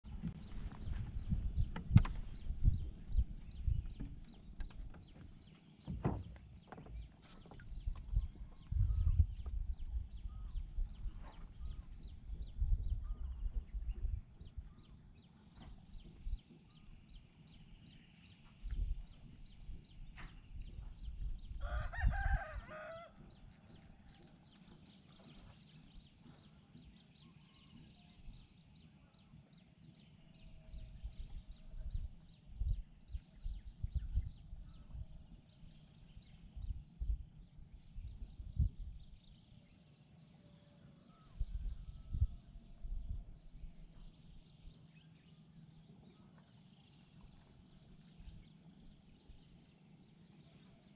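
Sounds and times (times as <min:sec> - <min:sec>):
wind buffeting microphone: 0:00.1 - 0:07.0, 0:07.6 - 0:15.0, 0:18.6 - 0:23.5, 0:30.7 - 0:35.5, 0:36.2 - 0:39.3, 0:41.4 - 0:44.8
rooster crowing: 0:21.6 - 0:23.2.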